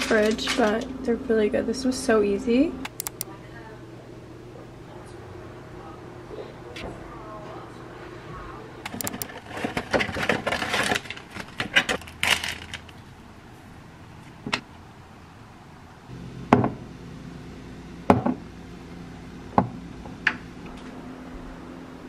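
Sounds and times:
low steady hum: 0.0 - 9.3, 16.0 - 22.0.

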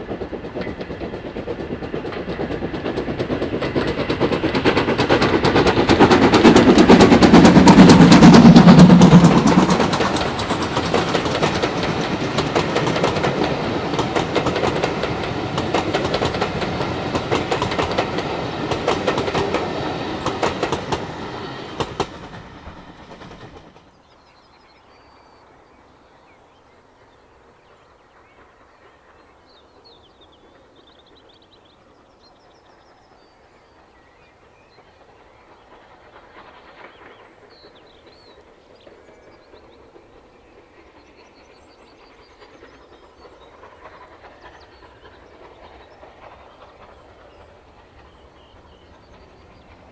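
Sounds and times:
steam locomotive exhaust: 0.0 - 23.8
train wheels clattering over rails: 0.0 - 24.1, 27.8 - 49.9.

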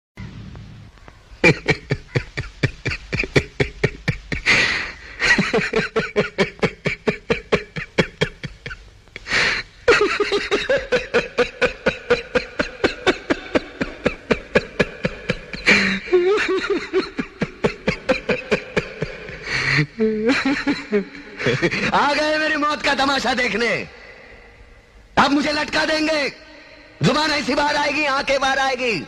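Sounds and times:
man laughing hard: 1.4 - 22.2.

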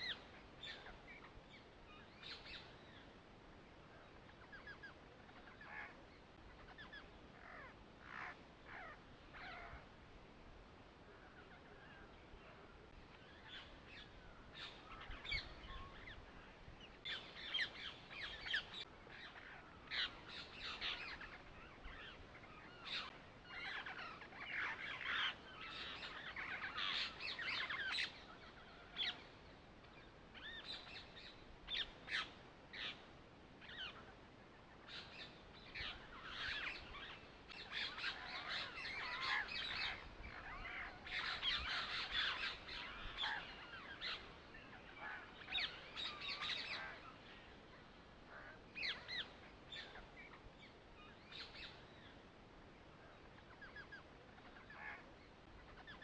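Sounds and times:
birds chirping and calling: 0.0 - 3.2, 4.0 - 9.9, 11.1 - 56.0.

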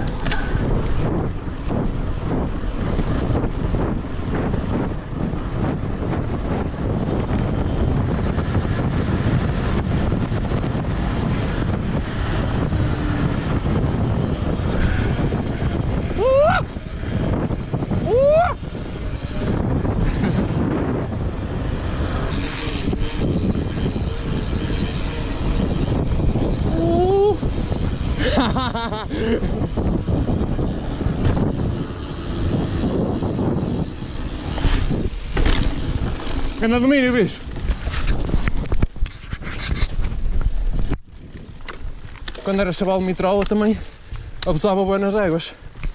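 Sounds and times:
tyre noise on road: 0.0 - 45.9
wind rushing over microphone: 0.0 - 45.9.

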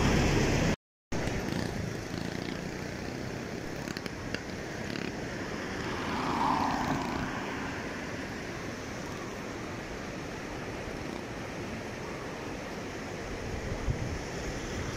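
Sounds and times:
steady road noise: 0.0 - 14.9
car passing close by: 5.3 - 8.6.

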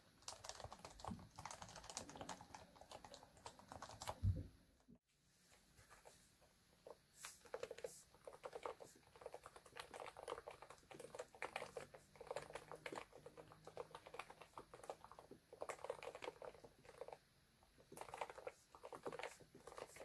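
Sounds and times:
fast keyboard typing: 0.0 - 4.4, 7.4 - 17.2, 17.8 - 20.0.

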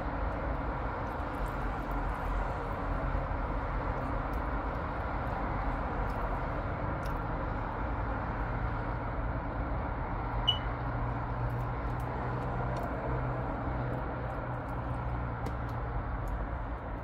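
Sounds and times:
distant road traffic: 0.0 - 17.0
high chirp: 10.5 - 10.7.

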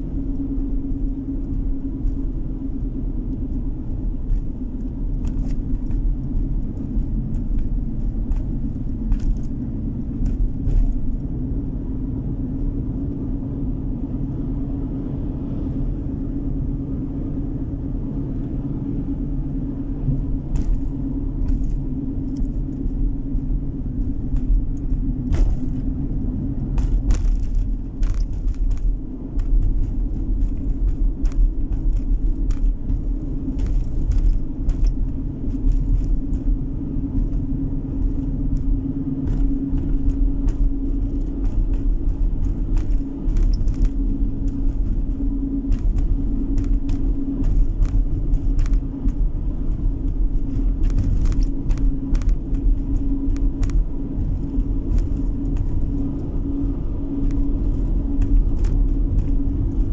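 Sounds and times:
car engine and tyres rumbling: 0.0 - 59.9
small clicks and rattles: 3.3 - 11.4, 20.2 - 59.9.

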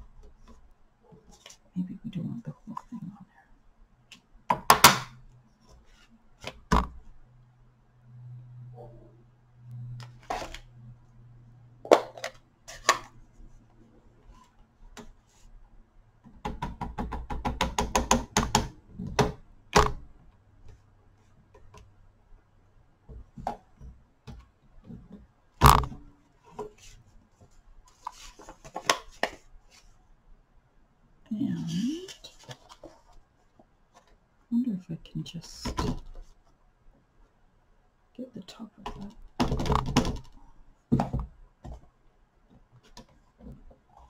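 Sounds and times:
plastic clicks and knocks: 16.2 - 20.2, 38.9 - 41.8.

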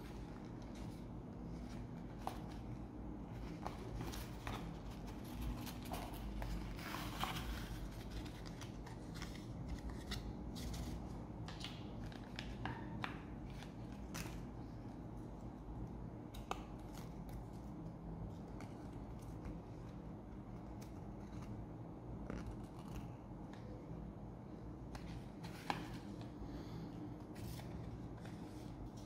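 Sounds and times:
cardboard and paper rustling: 0.0 - 14.9, 24.9 - 29.0
low steady hum: 0.0 - 29.0.

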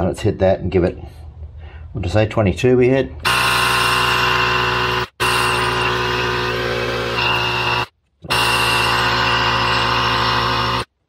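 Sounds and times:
air compressor running: 3.2 - 11.0.

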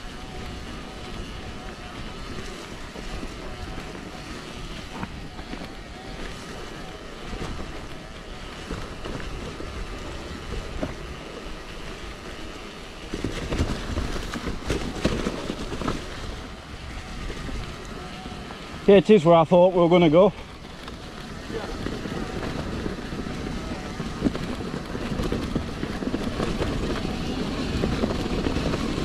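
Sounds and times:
bike tyres rumbling on trail: 0.0 - 29.0
wind buffeting microphone: 0.0 - 29.0
bike knocks and rattles: 1.4 - 16.6.

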